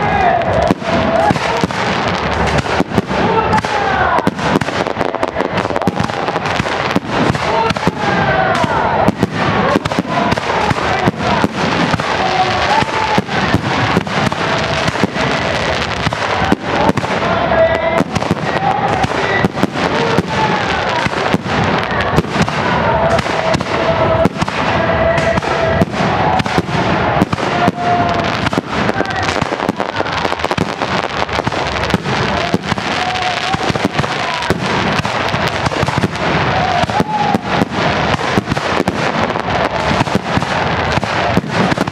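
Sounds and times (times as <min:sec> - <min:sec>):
fireworks bursting: 0:00.0 - 0:41.9.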